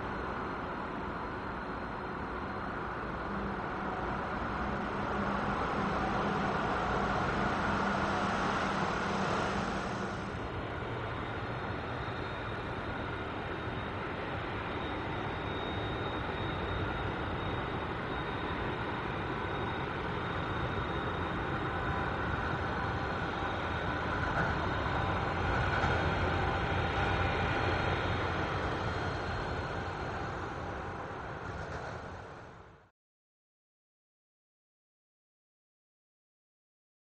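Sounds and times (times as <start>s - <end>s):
jet engine idle whine: 0.0s - 32.9s
jet engines roaring: 4.6s - 32.5s.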